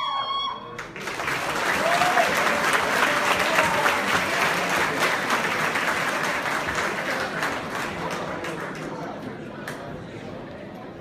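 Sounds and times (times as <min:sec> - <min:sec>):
audience applauding: 0:00.8 - 0:09.0.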